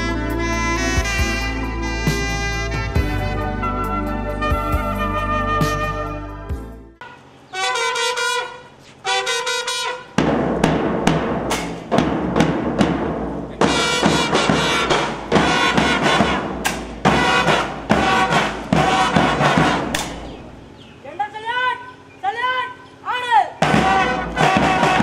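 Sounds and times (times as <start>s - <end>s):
drums beating a march: 0.0s - 6.7s, 7.6s - 20.7s, 23.5s - 25.0s
brass playing: 0.0s - 10.2s, 13.6s - 20.3s, 23.6s - 25.0s.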